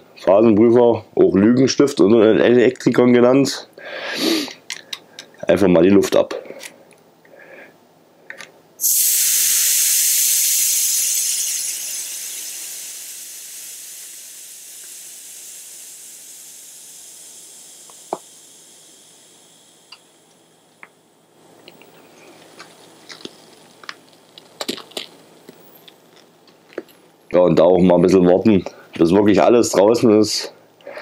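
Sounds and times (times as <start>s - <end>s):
air hissing from valve: 4.0s - 4.6s, 8.8s - 26.0s.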